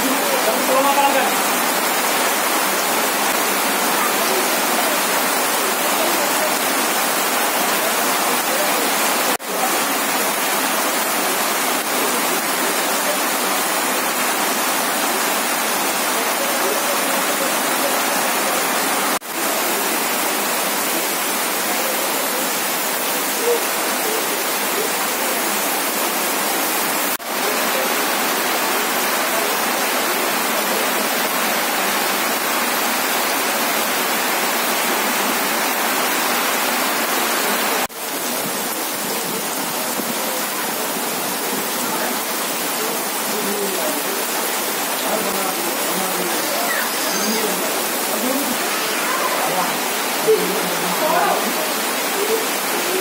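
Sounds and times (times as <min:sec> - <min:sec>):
heavy rain pouring: 0:00.0 - 0:53.0.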